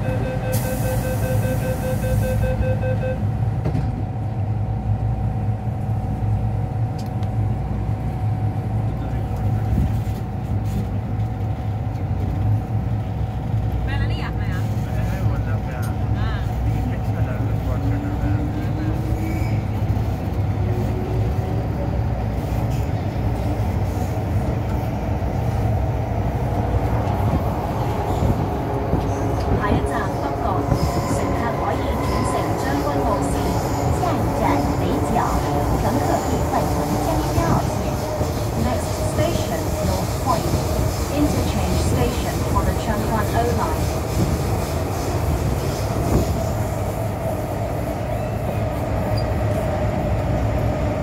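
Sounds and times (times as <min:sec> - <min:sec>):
train interior rumble and hum: 0:00.0 - 0:51.0.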